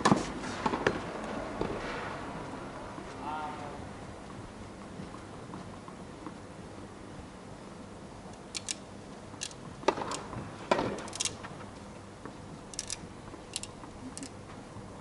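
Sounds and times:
players' footsteps scuffing: 0.0 - 3.2, 3.8 - 7.3.

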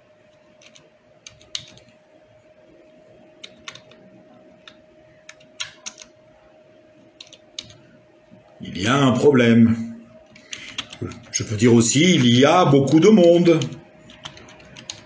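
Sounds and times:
typing on computer keyboard: 0.6 - 1.9, 3.4 - 4.0, 4.6 - 6.1, 7.2 - 7.8, 10.3 - 11.4, 12.0 - 12.4, 13.0 - 15.0.

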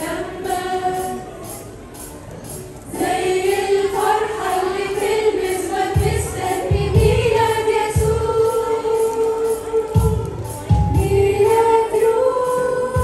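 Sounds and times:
women's choir singing a hymn: 0.0 - 1.6, 2.9 - 13.0
low accompaniment beats: 5.9 - 9.0, 9.7 - 13.0.

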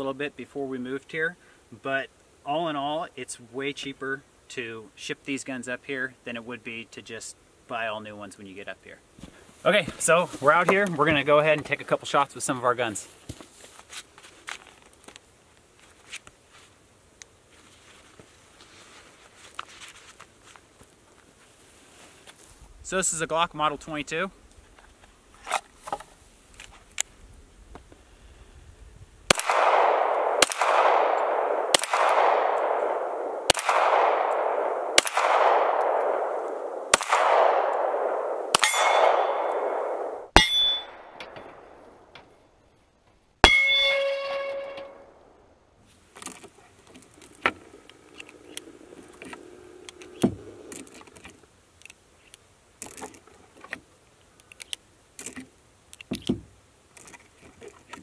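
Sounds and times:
pistol shots: 29.3 - 41.8
steel target ringing: 38.5 - 41.2, 43.4 - 45.1
metallic clicks of revolver loading: 47.9 - 53.0.

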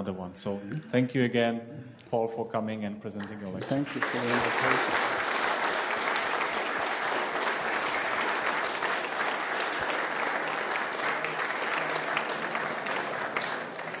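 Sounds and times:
audience applauding: 3.5 - 14.0.

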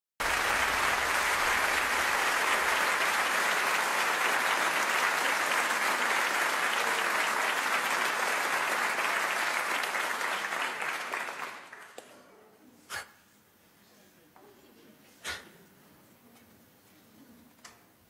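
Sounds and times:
audience applauding: 0.2 - 12.0.

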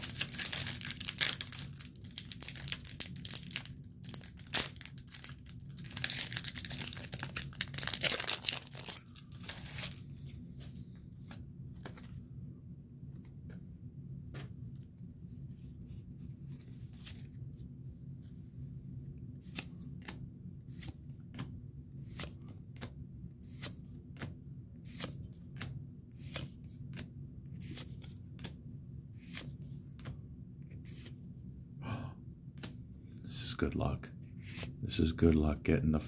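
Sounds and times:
cards swishing: 34.4 - 34.8.

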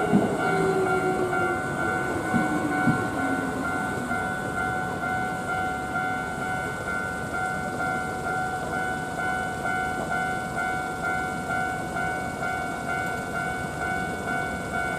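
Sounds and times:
train wheels clacking over rail joints: 0.0 - 5.0
train motor whine: 0.0 - 7.2
level crossing alarm dinging: 0.0 - 14.9.

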